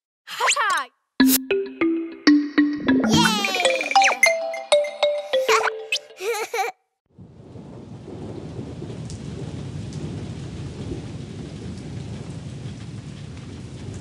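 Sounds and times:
cartoon rainfall: 0:02.9 - 0:06.7.

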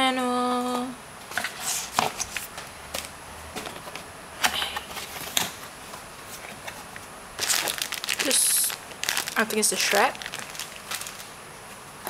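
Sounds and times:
cardboard packaging handled: 0:06.2 - 0:11.3.

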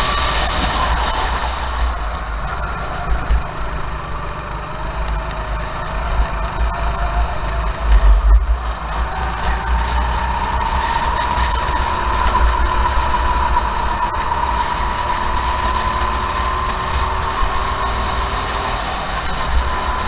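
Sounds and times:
constant low rumble: 0:00.0 - 0:15.7
go-kart engine running: 0:00.0 - 0:20.0.

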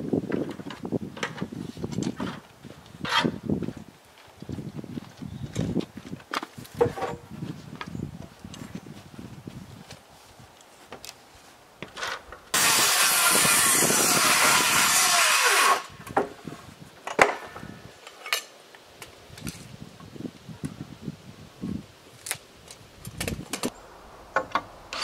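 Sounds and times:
power saw cutting wood: 0:12.6 - 0:16.0.

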